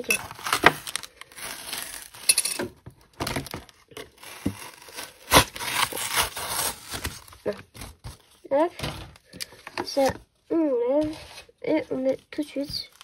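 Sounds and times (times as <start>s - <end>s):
plastic packaging crinkling: 0.0s - 8.5s.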